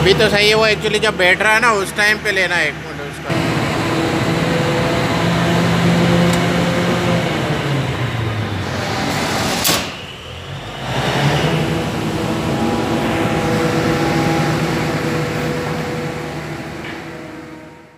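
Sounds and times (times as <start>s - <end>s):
diesel generator running: 0.0s - 17.9s
sharp clack: 9.1s - 10.1s.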